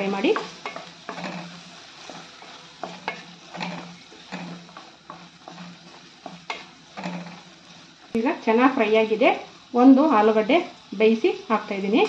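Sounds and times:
wooden spatula scraping a pan: 0.0s - 8.2s
oil sizzling: 0.0s - 12.0s.

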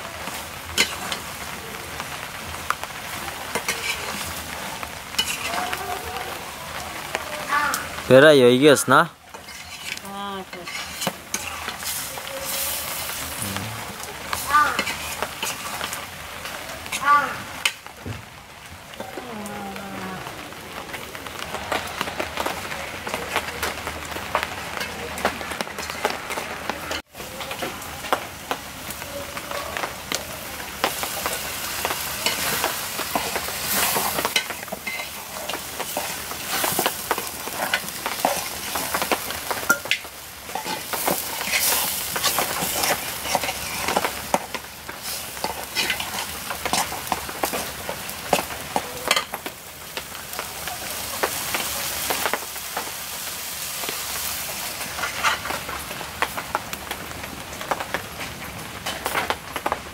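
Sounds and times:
food sizzling: 0.0s - 59.9s
metal spatula scraping metal pan: 3.6s - 4.2s, 9.3s - 13.2s.

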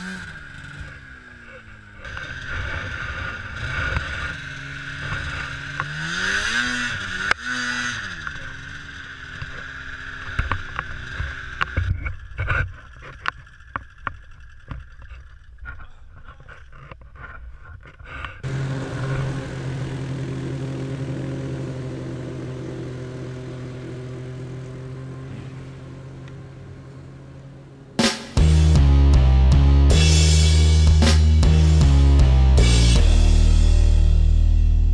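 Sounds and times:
snowmobile engine revving: 0.0s - 17.3s, 18.1s - 34.9s.

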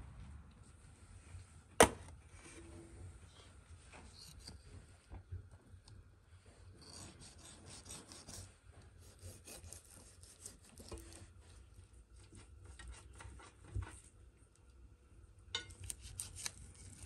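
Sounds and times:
knife sawing through crisp skin: 6.8s - 11.3s, 15.8s - 17.0s.

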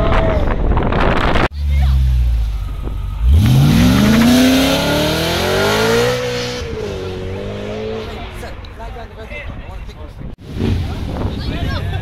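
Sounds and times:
car engine revving: 1.7s - 8.7s.

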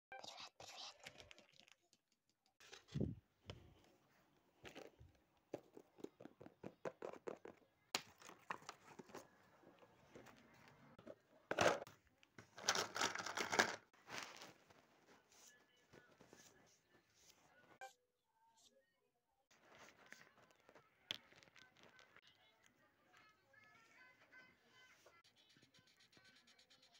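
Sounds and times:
crinkly plastic rustling: 12.4s - 15.3s.

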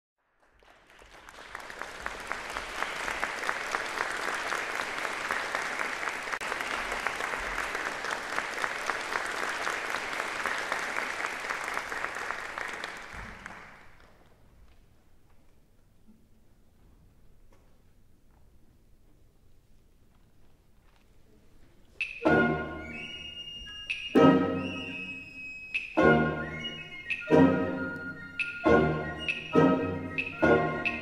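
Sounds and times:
audience applauding: 0.2s - 14.3s, 25.8s - 31.0s.

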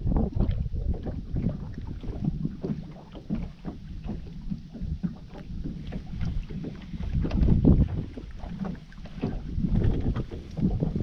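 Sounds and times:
waves lapping against boat hull: 0.0s - 11.0s
wind buffeting microphone: 0.0s - 11.0s.

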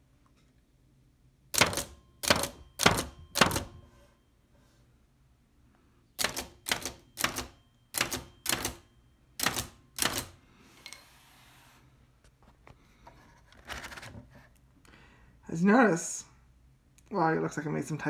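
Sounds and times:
typewriter key strikes: 1.6s - 3.7s, 6.2s - 8.8s, 9.4s - 10.3s.

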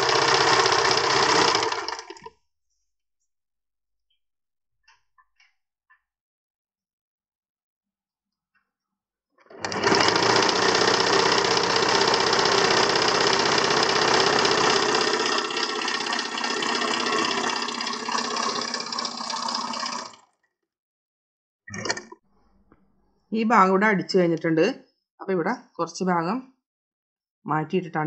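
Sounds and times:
electric sewing machine running: 0.0s - 2.3s, 9.5s - 20.2s.

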